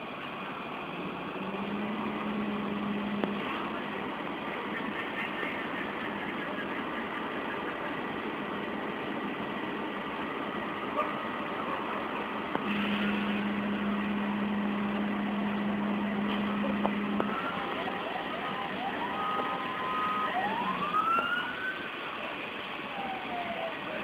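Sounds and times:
continuous noisy hiss: 0.0s - 24.0s
fire engine running: 0.0s - 24.0s
steady low hum: 12.0s - 17.9s.

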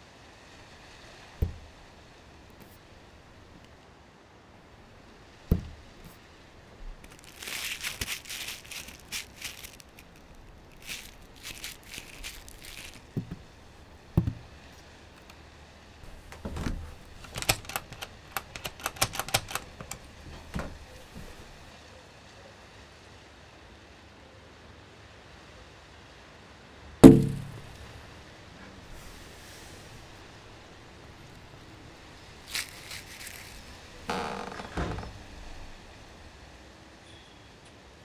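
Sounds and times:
low thuds: 1.3s - 3.6s, 5.5s - 18.3s, 19.7s - 21.7s, 27.0s - 28.0s
mitten scrubbing window glass: 5.5s - 21.7s, 28.9s - 35.7s
door handle clicks and rattles: 14.2s - 14.4s, 16.0s - 21.6s.

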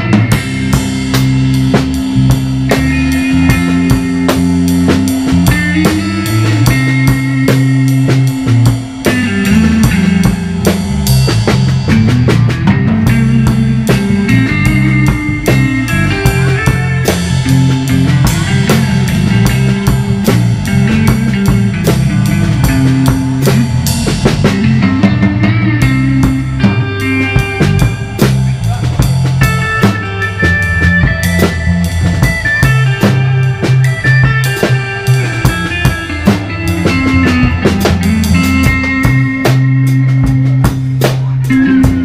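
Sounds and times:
bass line: 0.0s - 42.0s
electric guitar lines: 0.0s - 42.0s.

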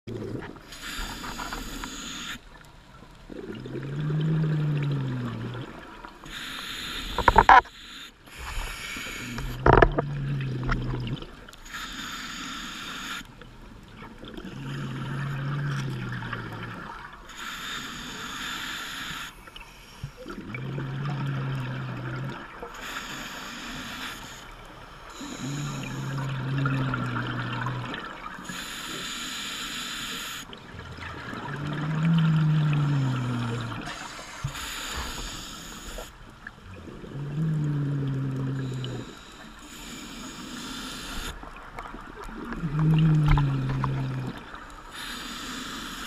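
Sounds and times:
diver breathing through regulator: 0.2s - 2.4s, 6.2s - 10.0s, 11.6s - 13.3s, 17.3s - 20.2s, 21.0s - 30.6s, 31.4s - 36.3s, 37.0s - 41.9s, 42.5s - 46.0s.

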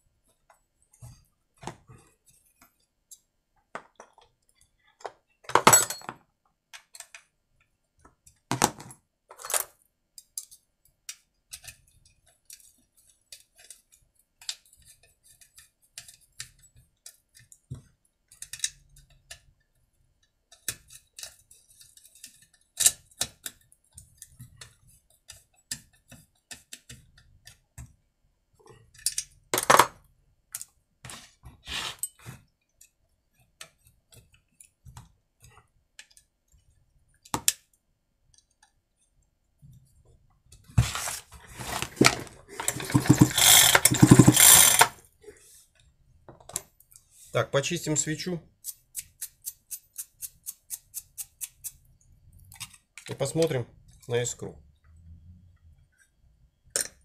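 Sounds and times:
metal tools clicking and clinking: 5.6s - 6.2s, 41.8s - 45.0s.

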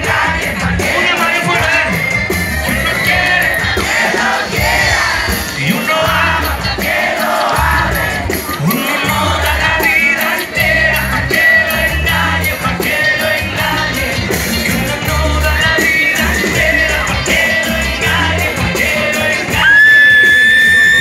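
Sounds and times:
bass guitar: 0.0s - 21.0s
drum kit beat: 0.0s - 21.0s
voices singing: 0.0s - 21.0s.

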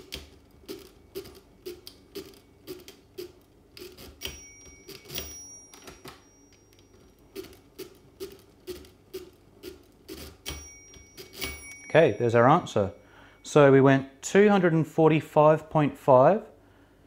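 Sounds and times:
calculator bell ringing: 4.0s - 7.9s, 10.2s - 14.0s.

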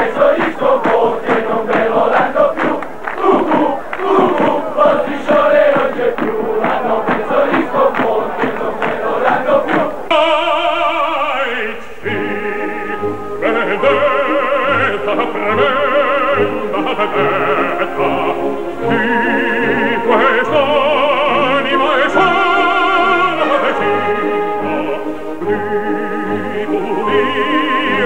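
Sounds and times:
crowd chanting: 0.0s - 28.0s
opera singing with orchestra: 0.0s - 28.0s.

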